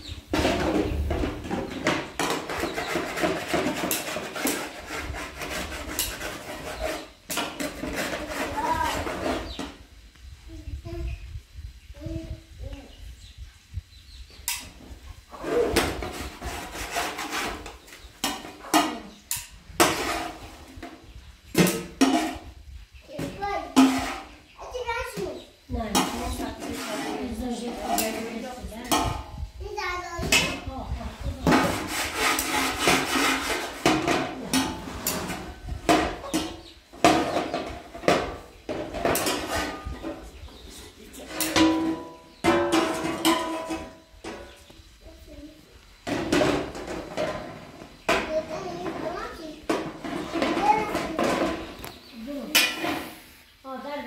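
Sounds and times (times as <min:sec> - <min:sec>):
hard objects knocking and clattering: 0:00.3 - 0:09.8, 0:31.4 - 0:40.3, 0:41.3 - 0:44.6, 0:46.0 - 0:52.0.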